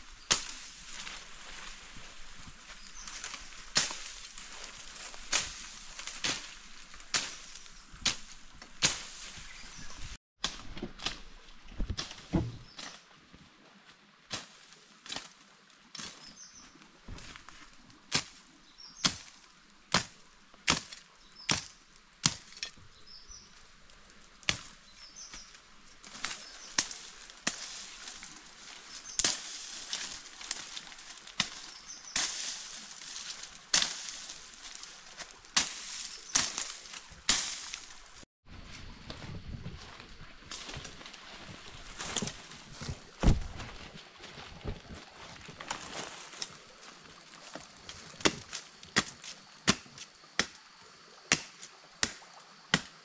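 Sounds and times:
leafy brush rustling: 0.0 - 21.7, 22.3 - 50.3
blade chopping wood: 11.8 - 12.8, 19.9 - 22.8, 43.2 - 43.6, 48.2 - 50.6, 51.3 - 52.9.

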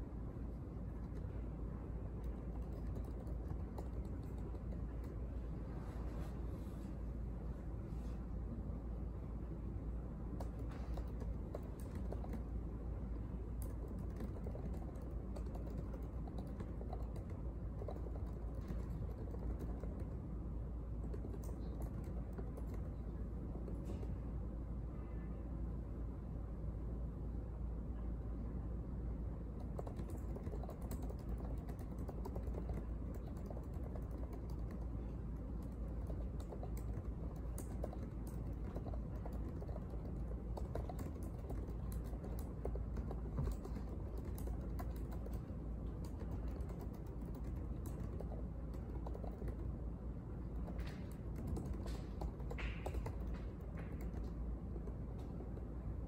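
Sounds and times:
low room hum: 0.0 - 56.0
laptop keyboard typing: 0.8 - 1.4, 2.1 - 5.4, 10.3 - 24.1, 29.5 - 49.8, 50.4 - 55.8.

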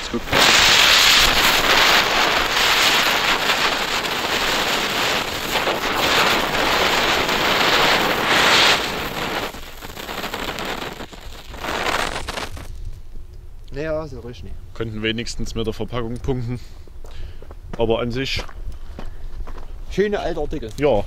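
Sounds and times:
fireworks spinners hissing: 0.0 - 12.9.

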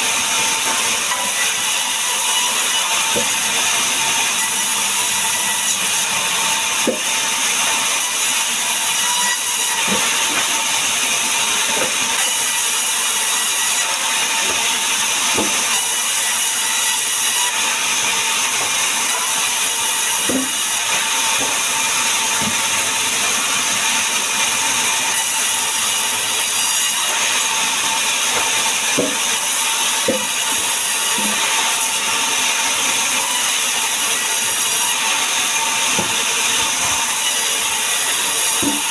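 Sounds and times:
band saw cutting log: 0.0 - 38.9
timber knocking: 29.0 - 29.3, 36.0 - 36.3.

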